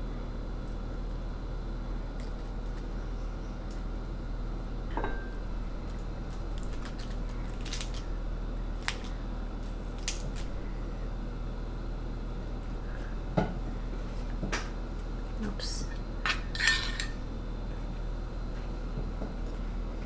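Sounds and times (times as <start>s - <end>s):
steady low hum: 0.0s - 20.0s
lettuce leaves crinkling: 5.8s - 10.6s.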